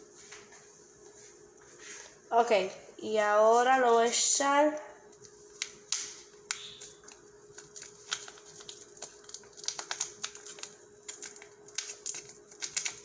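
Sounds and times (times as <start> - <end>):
faint steady hum: 0.0 - 13.0
packet crinkling: 5.1 - 13.0.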